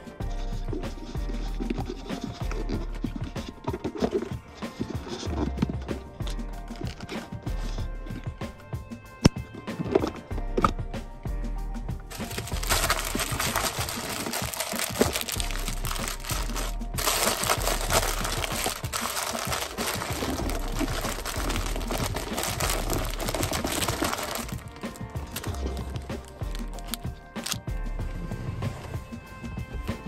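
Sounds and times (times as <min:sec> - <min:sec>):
background music: 0:00.0 - 0:30.0
phone handling rustling and crackling: 0:12.1 - 0:27.6.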